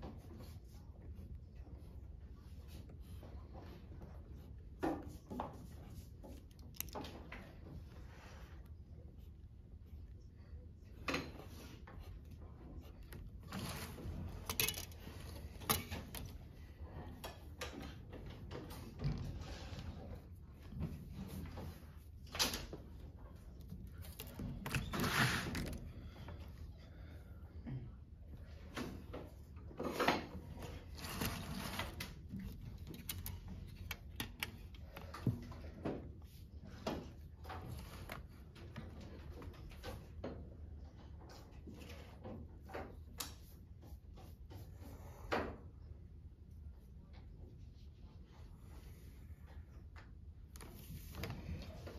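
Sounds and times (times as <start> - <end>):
rustling scrape: 11.4 - 16.4, 23.4 - 26.2, 29.8 - 34.1
straightedge scraping across paper: 24.7 - 25.8, 30.6 - 32.2.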